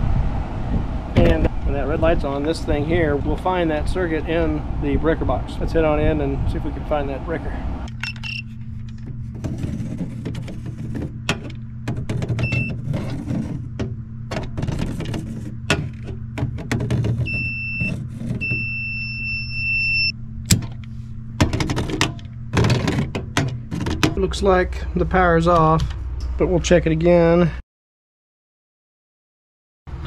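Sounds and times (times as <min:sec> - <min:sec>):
steady low hum: 0:00.0 - 0:27.6
high steady beep: 0:12.4 - 0:12.8, 0:17.3 - 0:20.1.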